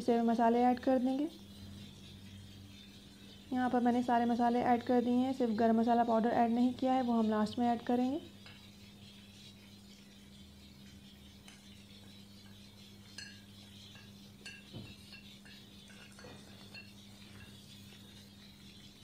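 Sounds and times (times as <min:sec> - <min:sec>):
spatula clinking on pot: 0:12.4 - 0:18.2.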